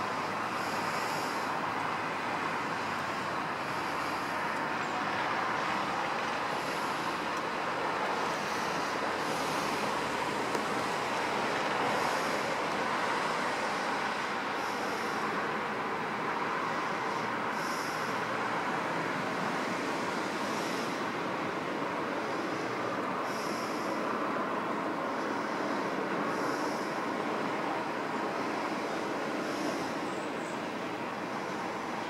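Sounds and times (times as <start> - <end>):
rushing outdoor background noise: 0.0 - 32.0.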